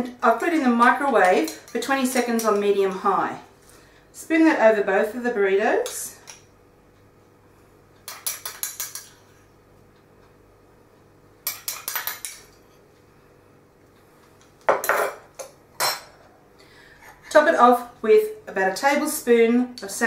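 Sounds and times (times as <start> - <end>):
metal spoon clinking on a dish: 8.0 - 9.2, 11.4 - 12.5.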